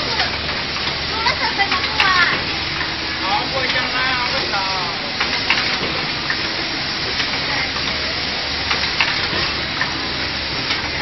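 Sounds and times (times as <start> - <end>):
factory machine hiss: 0.0 - 11.0
sharp clicks and knocks: 8.6 - 10.0.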